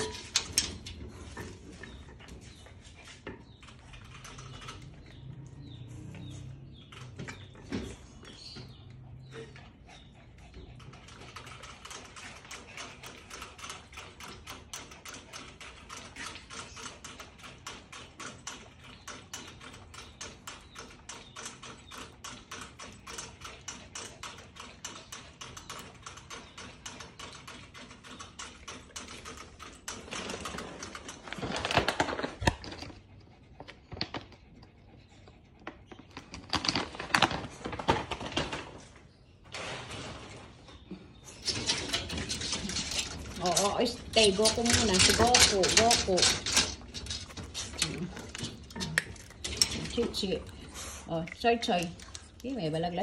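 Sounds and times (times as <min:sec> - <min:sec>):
wire cage rattling: 0:41.3 - 0:50.6.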